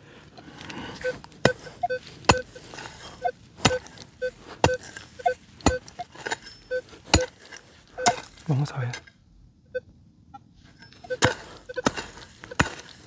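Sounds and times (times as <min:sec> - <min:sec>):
digging tool striking ground: 0:00.4 - 0:08.6, 0:10.8 - 0:13.0
metal detector beeps: 0:01.0 - 0:07.3, 0:08.0 - 0:08.3, 0:10.8 - 0:12.7.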